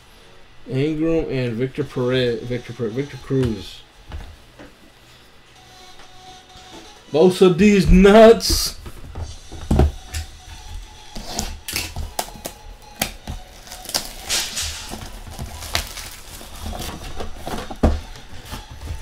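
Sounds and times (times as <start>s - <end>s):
packaging rustling: 11.3s - 19.0s.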